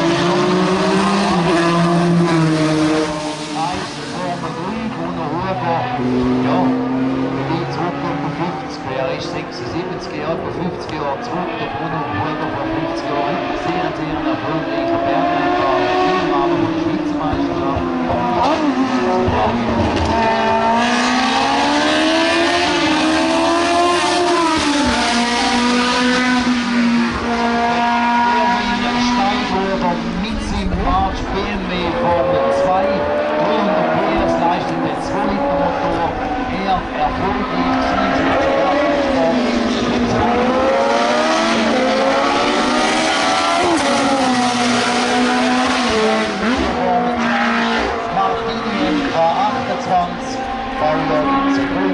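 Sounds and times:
quick gear upshifts: 0.0 - 51.9
race car engine at high revs: 0.0 - 51.9.

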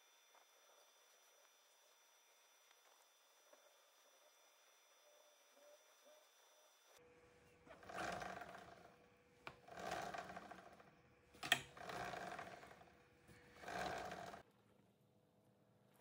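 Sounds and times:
drive chain over sprocket: 9.7 - 10.8, 11.4 - 12.8, 13.6 - 14.4.

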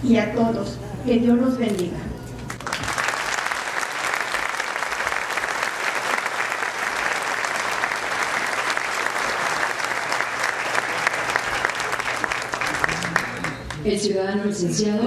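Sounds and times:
audience applauding: 2.5 - 13.8.

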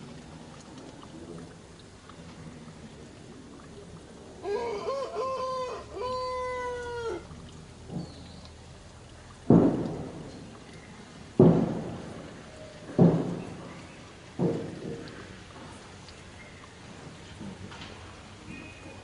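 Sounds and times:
loud thumps: 9.5 - 10.6, 11.3 - 13.8.

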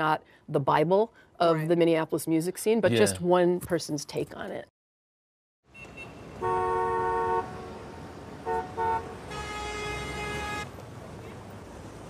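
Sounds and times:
vehicle horns honking: 5.7 - 10.7
street traffic noise: 5.7 - 12.0.

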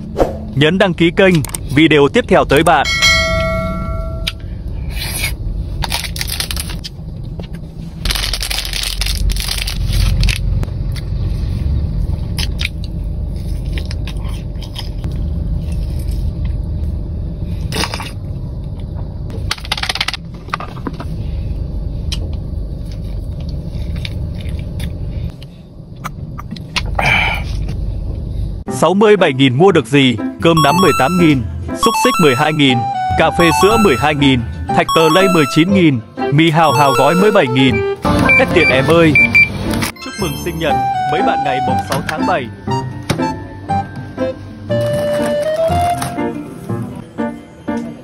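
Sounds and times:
snack wrappers crinkling: 5.8 - 6.9, 8.0 - 10.6
food crunching: 12.3 - 16.2.

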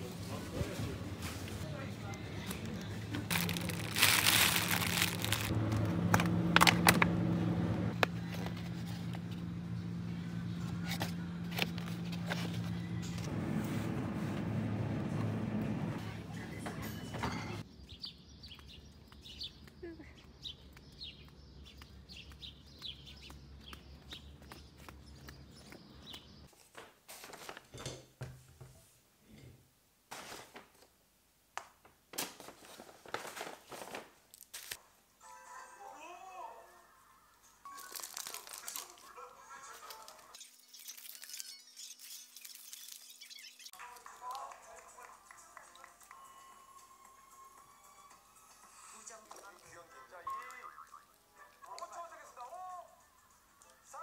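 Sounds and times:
paper bag rustling: 0.0 - 7.2, 26.5 - 27.8, 30.1 - 30.8, 32.1 - 34.8, 37.7 - 43.3
plastic wrap crinkling: 0.3 - 7.0, 32.1 - 34.8, 37.7 - 43.7
bird chirping: 17.6 - 26.5, 40.4 - 43.8
footsteps on pavement: 17.9 - 26.5.

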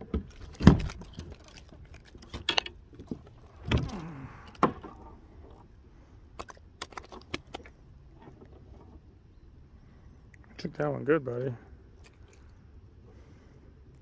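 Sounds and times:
fishing gear knocking and rattling: 0.0 - 5.0.

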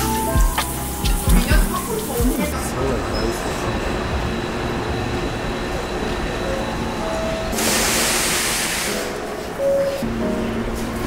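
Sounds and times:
loud air hiss: 7.6 - 9.8.

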